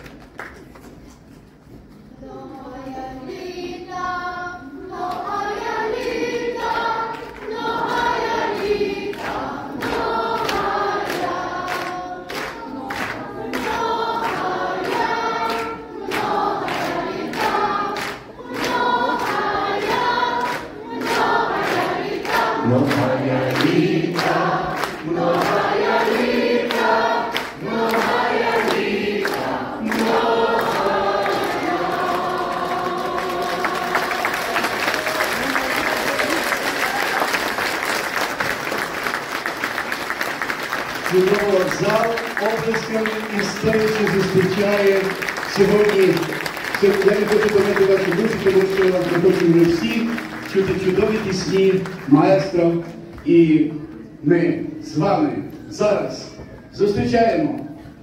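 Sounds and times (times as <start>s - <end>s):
group of voices singing: 2.2s - 36.3s.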